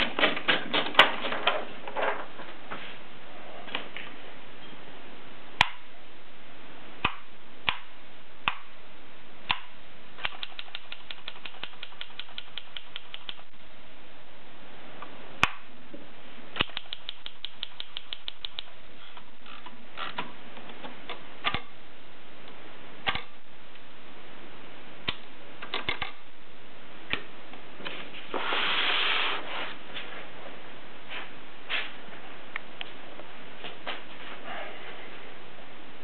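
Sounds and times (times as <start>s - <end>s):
typewriter ratcheting ticks: 10.2s - 13.4s.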